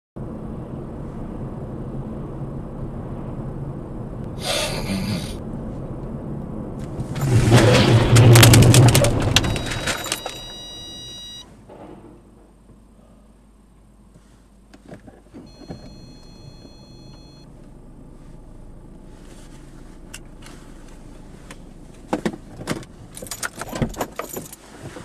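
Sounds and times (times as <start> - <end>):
car road noise: 0.2 - 12.9, 13.5 - 25.0
truck and car colliding: 6.8 - 12.5
crunching metal: 6.9 - 10.6
high electronic tone: 9.4 - 11.4.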